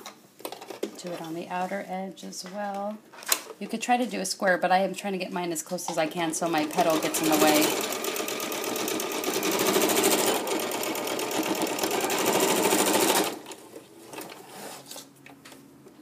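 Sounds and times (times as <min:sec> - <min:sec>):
sewing machine stitching: 0:06.5 - 0:14.4.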